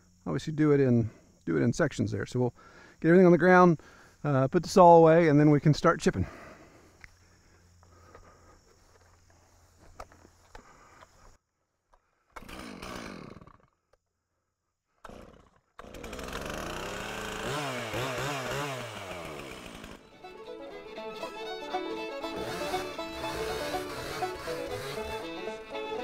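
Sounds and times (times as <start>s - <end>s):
chainsaw running and revving: 12.4s - 13.7s, 15.1s - 20.0s, 21.3s - 26.0s.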